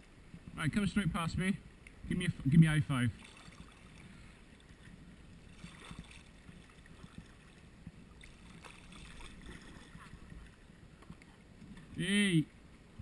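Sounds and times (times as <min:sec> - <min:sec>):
water lapping around kayaks: 0:00.0 - 0:13.0
soft paddle splashes: 0:03.1 - 0:12.0.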